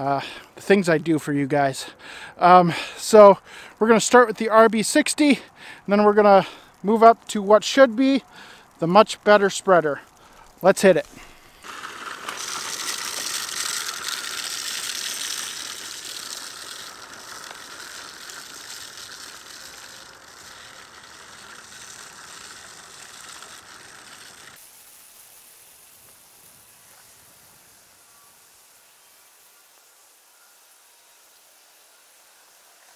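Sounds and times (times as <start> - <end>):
salt hissing: 0.0 - 32.9
spreader spinner whirring and ticking: 3.0 - 24.8.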